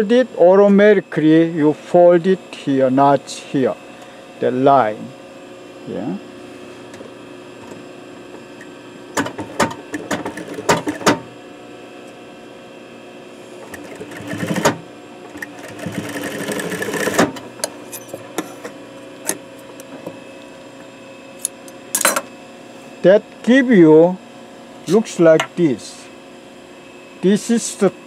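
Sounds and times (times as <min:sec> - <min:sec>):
steady hum: 0:00.0 - 0:28.0
sewing machine stitching: 0:13.7 - 0:14.8, 0:15.4 - 0:17.4.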